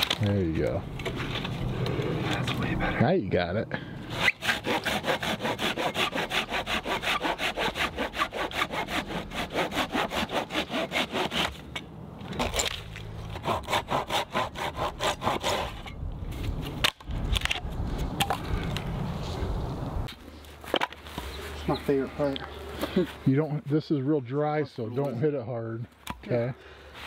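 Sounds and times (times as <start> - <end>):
hand saw cutting wood: 4.1 - 11.6, 13.3 - 16.0.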